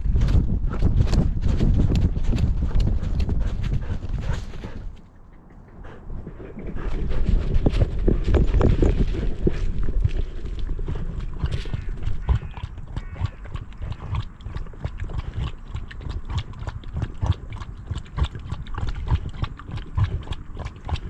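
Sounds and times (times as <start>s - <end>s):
dog lapping water: 8.1s - 21.0s.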